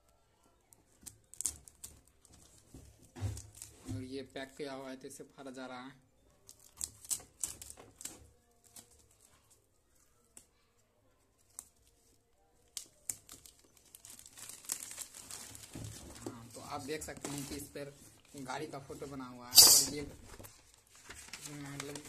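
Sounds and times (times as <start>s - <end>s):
plastic wrapping crinkling: 0.3s - 4.0s, 6.4s - 22.0s.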